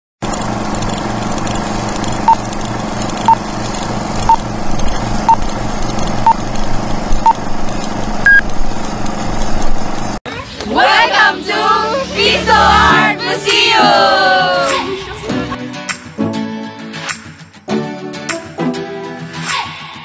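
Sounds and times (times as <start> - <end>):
film hum and crackle: 0.2 - 10.2
short beeps: 8.2 - 8.4.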